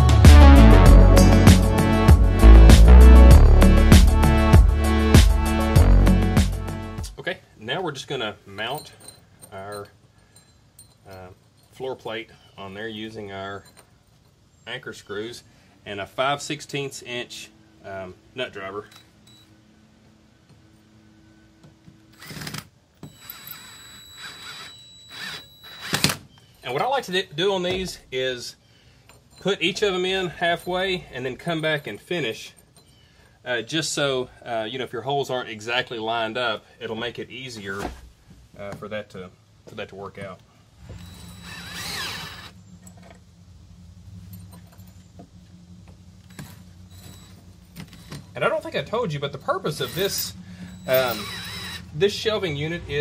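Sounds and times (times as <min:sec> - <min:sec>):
cordless drill driving screw: 0:22.1 - 0:26.2, 0:41.0 - 0:42.6, 0:49.6 - 0:51.9
steady low hum: 0:38.1 - 0:53.0.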